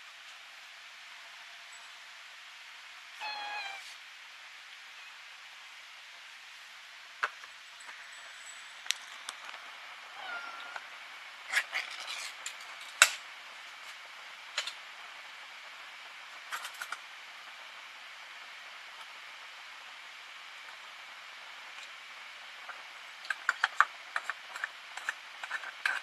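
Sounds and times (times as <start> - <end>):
cat meowing: 3.2 - 3.9, 10.2 - 10.8.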